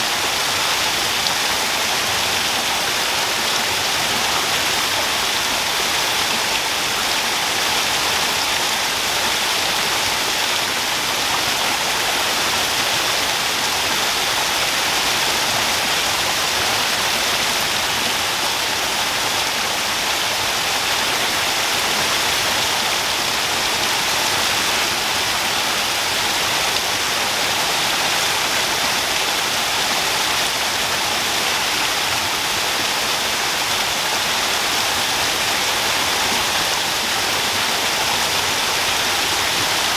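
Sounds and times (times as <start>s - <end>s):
waterfall rushing over rocks: 0.0s - 39.9s.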